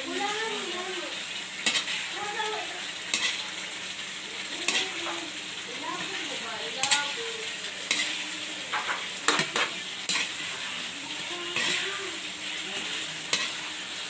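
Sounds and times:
chicken sizzling in a wok: 0.0s - 14.0s.

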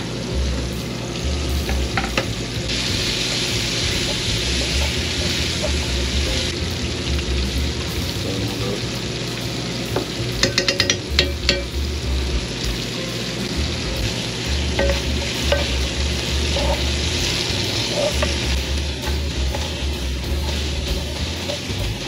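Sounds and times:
pork sizzling in a pan: 0.0s - 22.0s
utensils knocking on pan: 1.6s - 2.4s, 3.0s - 6.5s, 9.9s - 12.0s, 14.0s - 22.0s
metal spoon tapping spatula: 1.7s - 2.3s, 4.0s - 6.4s, 10.4s - 11.8s, 14.8s - 22.0s.

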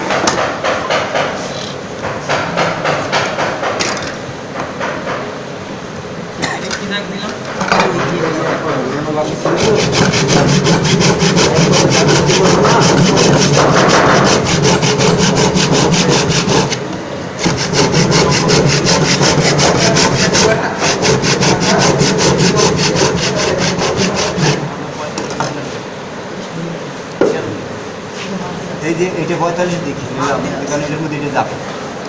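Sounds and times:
saw cutting through wood: 9.4s - 16.8s, 17.4s - 24.7s.

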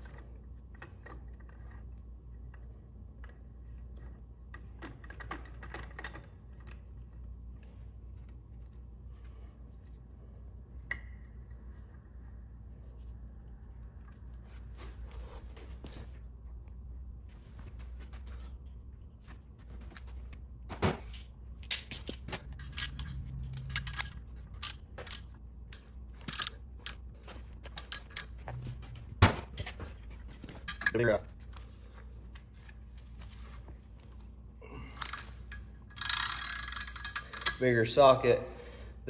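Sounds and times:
metal tools clinking and clanking: 21.1s - 31.2s.

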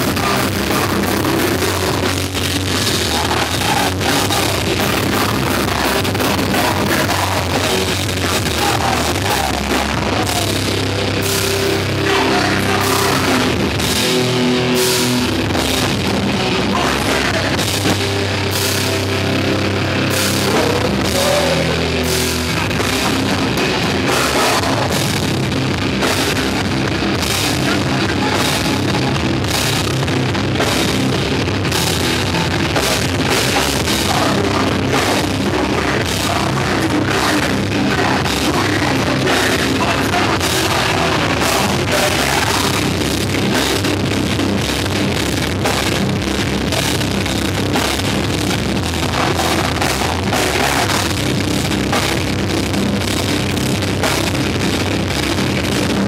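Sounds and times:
heavy rock band playing live: 0.0s - 56.0s
pounding drum kit: 0.0s - 56.0s
person singing: 2.8s - 10.8s, 11.8s - 14.2s, 16.5s - 18.1s, 20.2s - 25.2s, 33.4s - 42.9s, 49.0s - 51.2s.

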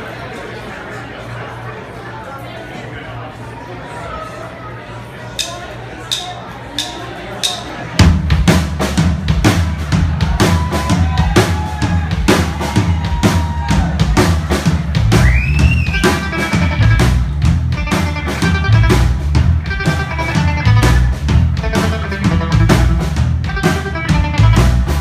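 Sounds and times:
drum kit beat: 5.4s - 25.0s
electric guitar chords: 15.9s - 25.0s.

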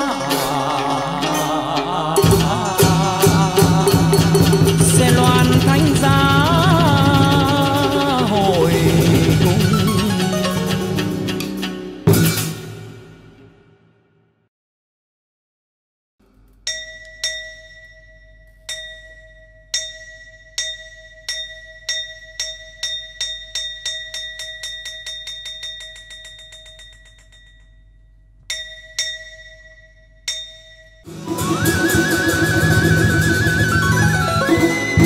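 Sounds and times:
ensemble music: 0.0s - 12.1s
small bell ringing: 16.7s - 31.1s.

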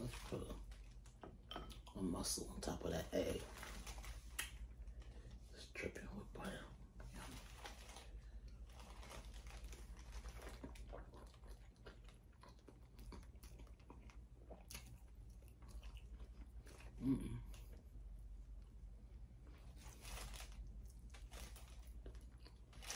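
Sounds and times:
person chewing: 7.5s - 18.7s, 19.4s - 22.9s.

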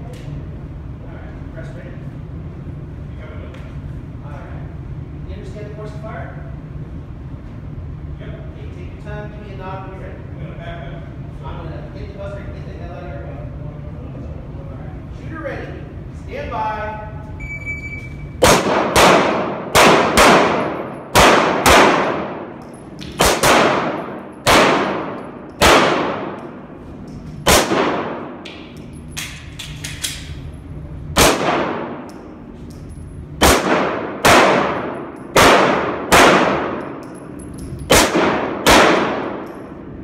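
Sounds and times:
shot timer beep: 17.4s - 18.4s
handgun shots echoing: 18.4s - 26.6s, 27.4s - 30.4s, 31.2s - 32.3s, 33.4s - 39.7s.

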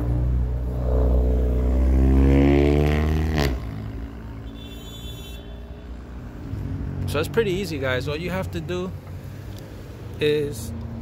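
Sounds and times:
vehicle engine accelerating: 0.0s - 4.4s.

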